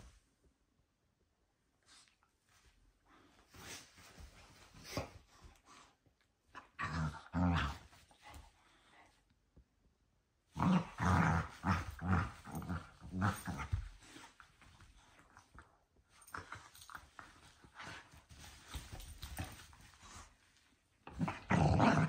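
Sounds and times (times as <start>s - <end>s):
dogs growling in play: 6.5s - 8.4s, 10.5s - 14.4s, 21.0s - 22.0s.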